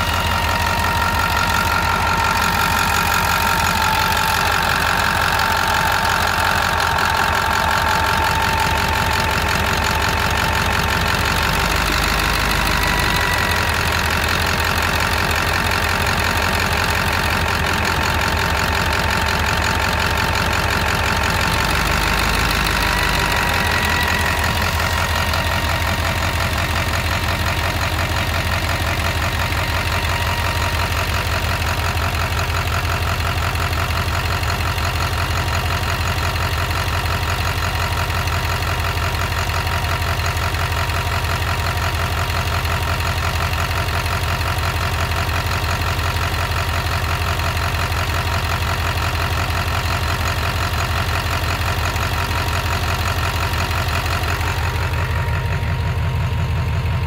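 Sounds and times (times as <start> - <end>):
diesel engine idling clatter: 0.0 - 57.0.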